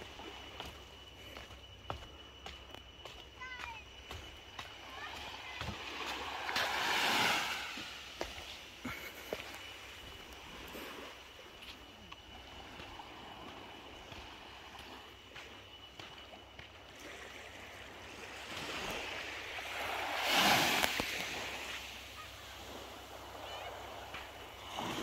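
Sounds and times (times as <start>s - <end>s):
small waves washing on shore: 4.8s - 15.5s, 16.8s - 25.0s.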